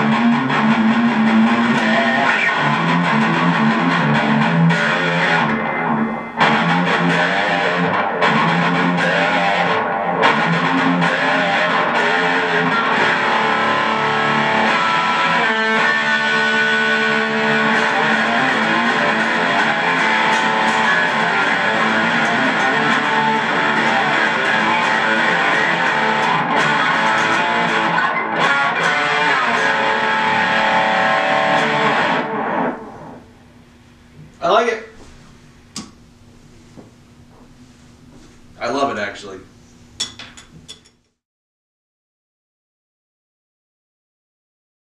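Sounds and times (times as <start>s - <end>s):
electric guitar with delay: 0.0s - 33.4s.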